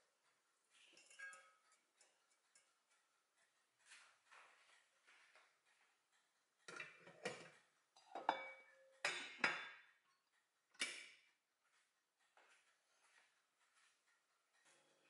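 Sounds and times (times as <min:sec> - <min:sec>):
short metallic ring: 0:01.0 - 0:01.7.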